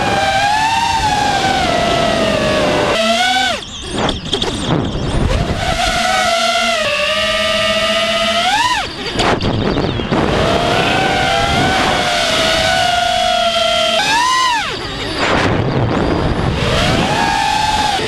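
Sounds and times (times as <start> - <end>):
drone motors whining: 0.0 - 18.0
steady rush of noise: 6.7 - 18.0.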